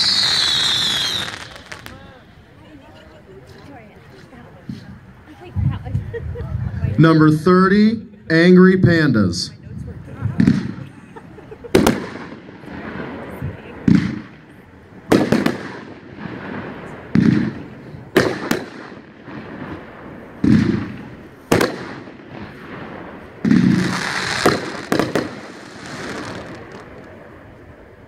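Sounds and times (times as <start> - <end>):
hissing crackle: 0.0 - 2.6
firework shells cracking: 23.5 - 27.2.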